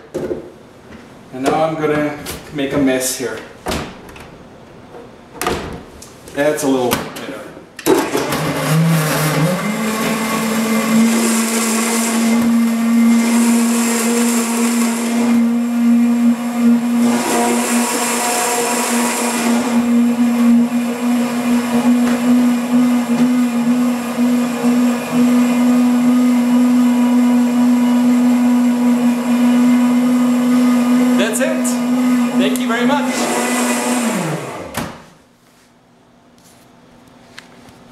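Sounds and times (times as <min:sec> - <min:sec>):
blender motor hum: 0:08.0 - 0:34.8.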